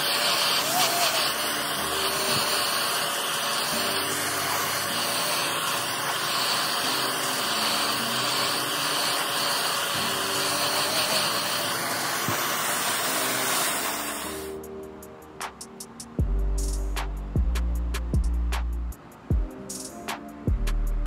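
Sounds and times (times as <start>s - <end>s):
fan motor whine: 0.0s - 14.6s
hot-air blower rushing airflow: 0.0s - 14.6s.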